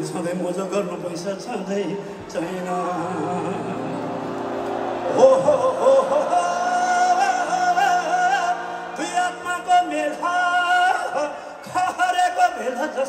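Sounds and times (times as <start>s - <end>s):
folk-rock band playing: 3.4s - 10.4s.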